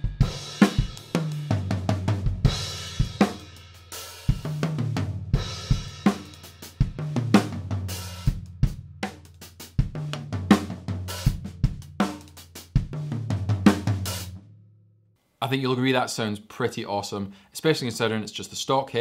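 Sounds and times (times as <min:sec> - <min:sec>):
drum kit groove and fills: 0:00.0 - 0:14.5.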